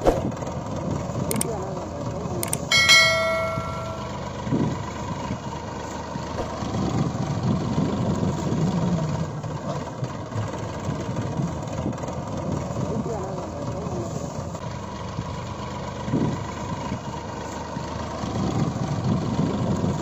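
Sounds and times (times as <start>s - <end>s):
tractor engine running: 0.0s - 20.0s
bell-like notification chime: 2.7s - 4.3s.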